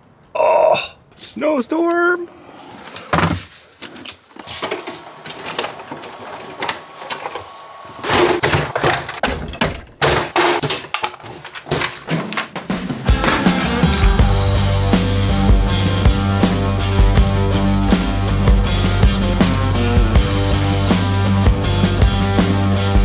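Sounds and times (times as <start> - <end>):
clicks and clatter of parts and tools: 2.9 - 12.7
music: 12.7 - 23.0.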